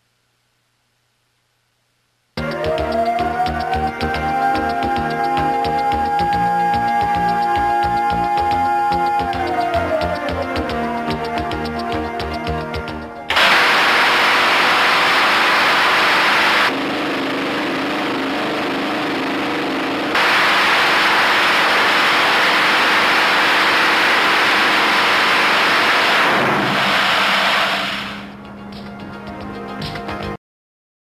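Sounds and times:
cannon rapid-fire roar: 13.3 - 28.4.

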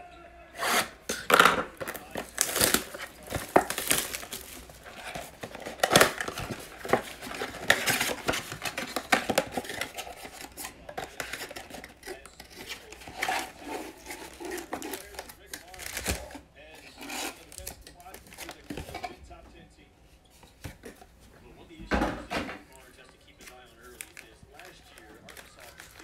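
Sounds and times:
box cutter slitting shrink wrap: 0.6 - 16.4
plastic wrap crinkling and tearing: 0.6 - 19.0, 23.0 - 26.0
cardboard flap opening: 1.7 - 16.4.

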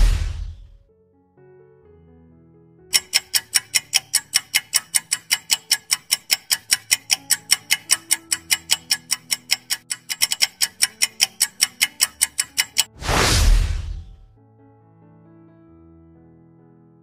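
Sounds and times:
rapid clock-like ticking: 2.9 - 13.0.

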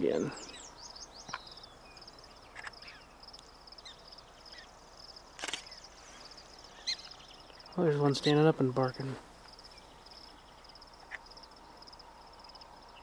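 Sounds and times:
high insect trill: 0.0 - 13.0
sharp click: 5.4 - 5.7.

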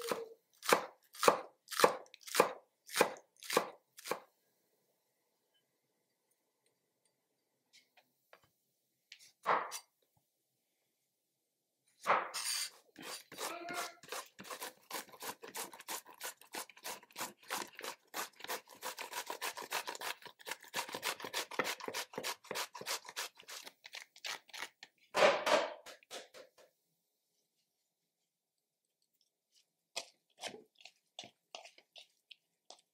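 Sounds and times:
vegetable grating on metal grater: 12.4 - 24.7, 30.0 - 32.1.

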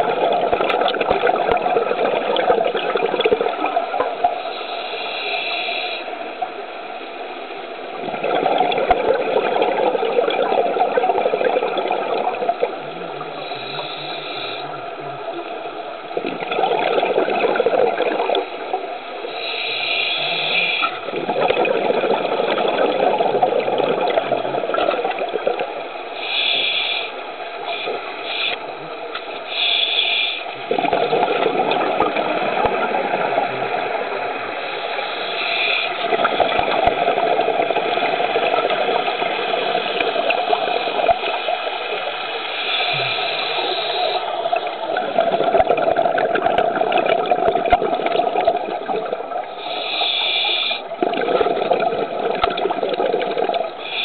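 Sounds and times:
hissing regulator inhalation: 4.4 - 6.1, 13.4 - 14.8, 19.3 - 21.0, 26.2 - 28.6, 29.4 - 31.0, 34.6 - 45.5, 49.5 - 51.4, 53.7 - 54.0
bubbling exhalation: 8.0 - 12.7, 21.1 - 25.7, 30.7 - 33.9, 44.5 - 49.4, 50.9 - 53.8.

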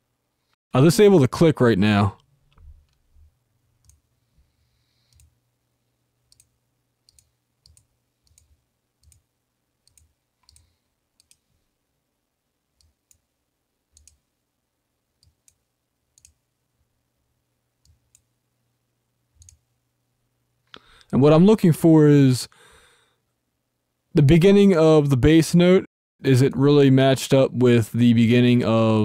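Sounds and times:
low room tone hum: 0.0 - 25.7
computer mouse clicks: 5.1 - 5.4, 6.3 - 11.5, 13.9 - 14.2, 15.2 - 16.4, 19.4 - 19.6.

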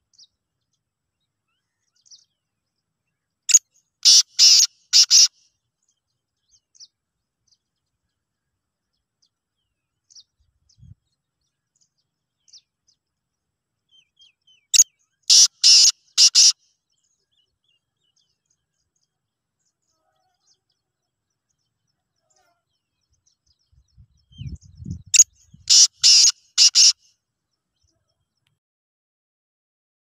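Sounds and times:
francolin harsh grating calls: 4.0 - 5.3, 15.3 - 16.6, 25.7 - 27.0.

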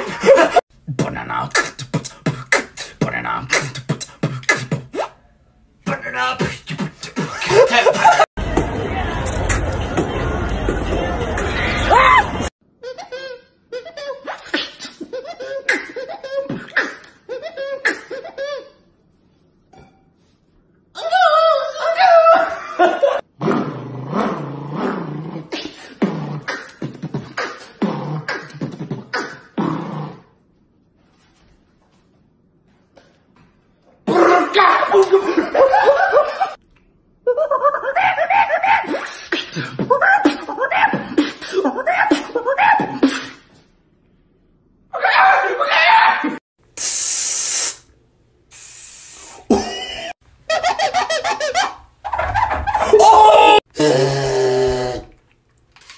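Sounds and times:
person beatboxing: 0.8 - 5.2, 5.9 - 8.2, 25.4 - 29.8, 38.9 - 43.4
people laughing: 7.2 - 8.3
spray can hissing: 46.8 - 47.9, 48.5 - 49.5.

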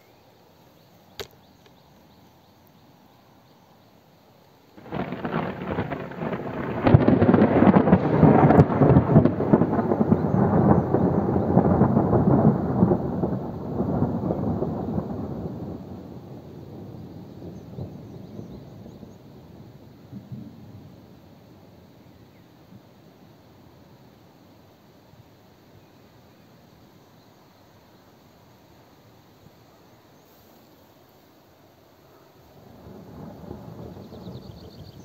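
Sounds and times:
faint click: 1.1 - 2.8
thunder rumbling and cracking: 4.8 - 21.2, 32.7 - 35.0.

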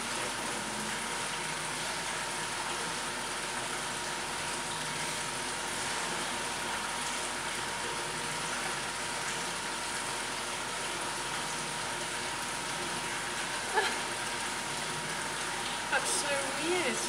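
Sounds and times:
water pumps rushing hiss: 0.0 - 17.0.

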